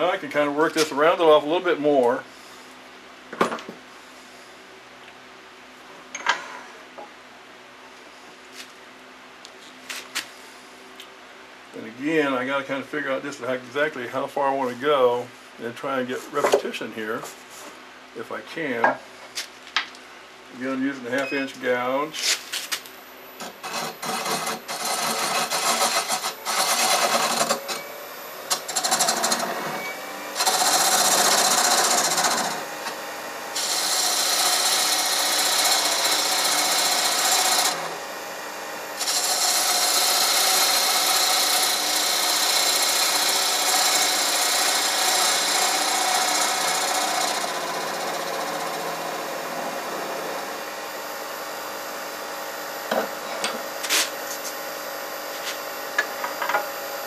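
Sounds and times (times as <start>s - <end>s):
gouge cutting wood on lathe: 23.4s - 27.8s, 28.5s - 51.0s.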